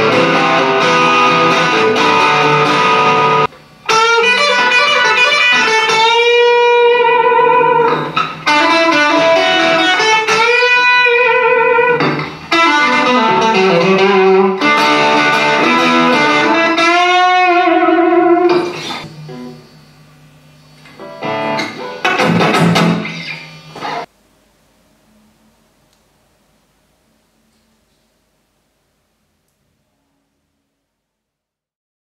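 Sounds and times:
electric guitar lead line: 0.0 - 19.9, 20.6 - 24.1.

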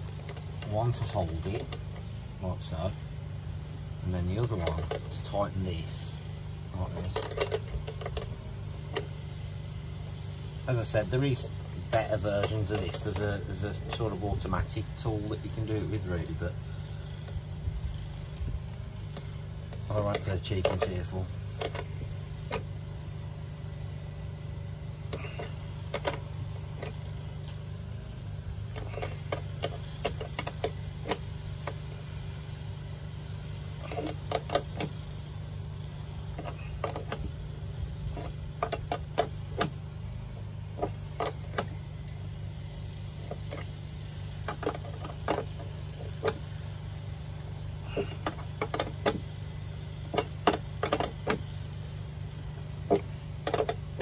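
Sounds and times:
steady low hum: 0.0 - 54.0
spanners clicking and clinking: 6.8 - 9.2, 10.8 - 17.5, 18.2 - 22.7, 25.0 - 27.6, 28.2 - 32.3, 33.6 - 42.6, 43.2 - 51.8, 52.5 - 54.0.

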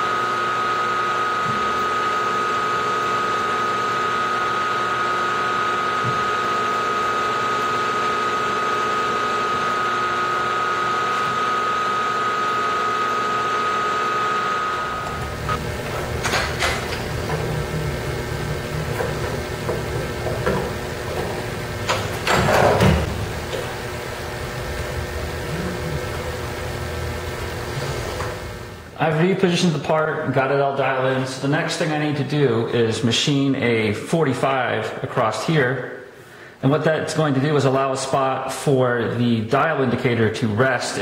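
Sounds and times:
milling machine spindle whine: 0.0 - 29.0.

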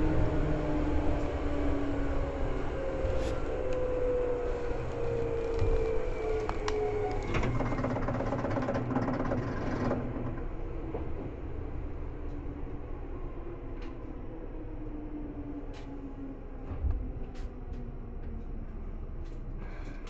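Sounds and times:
train motor whine: 0.0 - 10.2
train rumble: 0.0 - 20.0.

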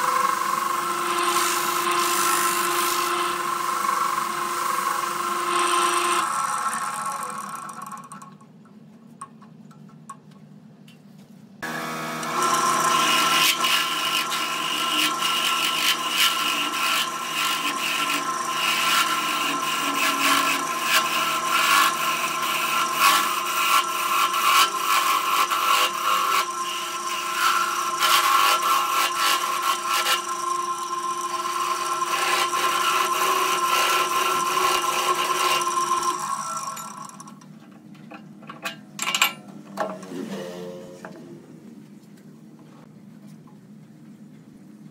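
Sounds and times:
wood lathe whine: 0.0 - 8.4, 11.6 - 37.5
tool scraping wood: 12.2 - 37.3.

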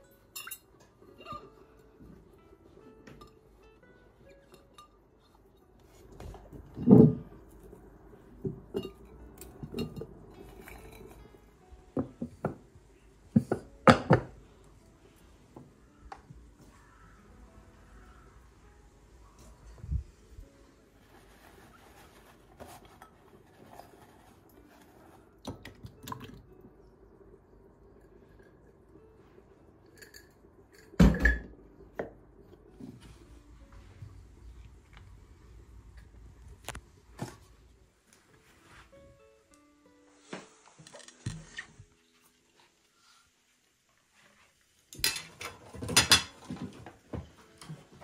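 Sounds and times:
glassware clinking on a counter: 0.3 - 1.6, 8.4 - 11.2, 30.0 - 31.5, 45.0 - 46.6.

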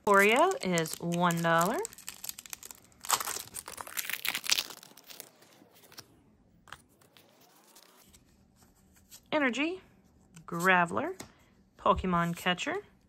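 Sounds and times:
foil wrapper tearing and crinkling: 0.0 - 5.6.

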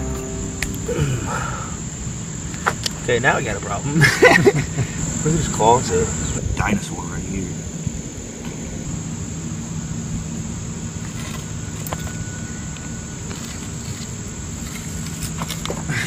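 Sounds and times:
low steady hum: 0.0 - 3.2
high insect trill: 0.0 - 16.0.

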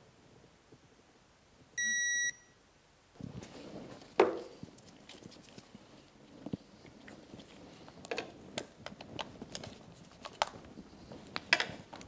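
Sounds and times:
torque wrench high beep: 1.8 - 2.5.

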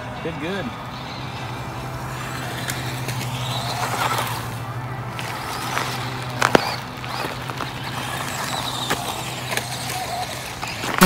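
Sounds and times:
electric motor hum: 0.0 - 11.0.

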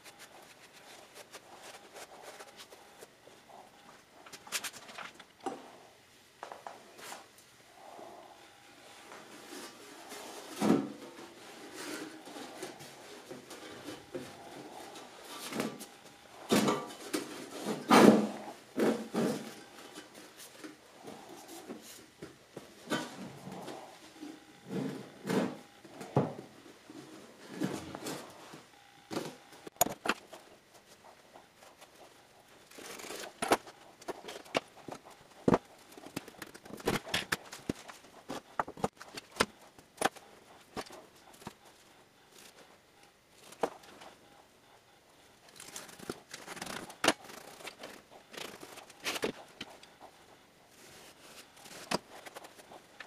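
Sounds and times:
soft rustling and scraping: 45.5 - 53.0.

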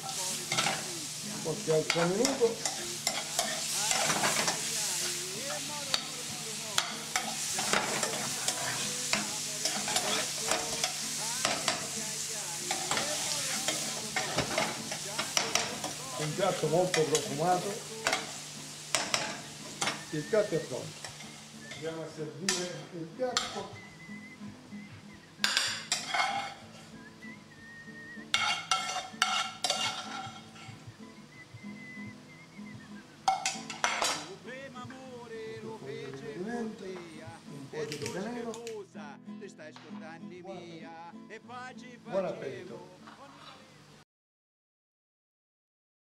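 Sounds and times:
vegetables sizzling in a skillet: 0.0 - 38.7
metal spoon scraping a pan: 0.4 - 6.2, 6.8 - 12.0, 12.6 - 20.0, 25.4 - 26.9, 28.3 - 30.8, 33.3 - 34.3.

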